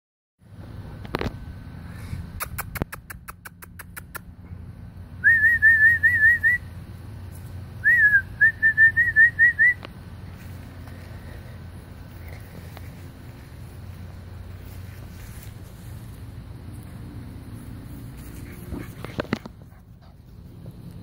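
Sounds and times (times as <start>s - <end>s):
sharp clicks: 2.4s - 4.3s.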